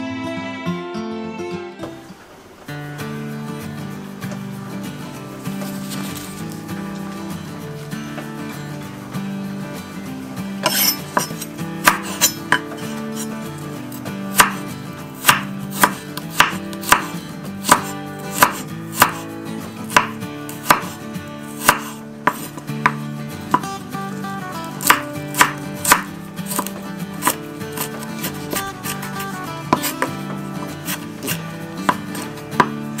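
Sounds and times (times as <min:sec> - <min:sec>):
knife chopping on cutting board: 0:10.6 - 0:13.3, 0:14.3 - 0:23.7, 0:24.6 - 0:33.0.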